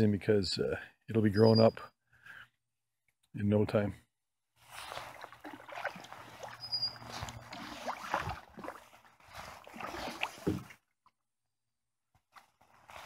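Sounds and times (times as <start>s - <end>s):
canoe paddle swishing through water: 4.6s - 10.8s, 12.6s - 13.0s.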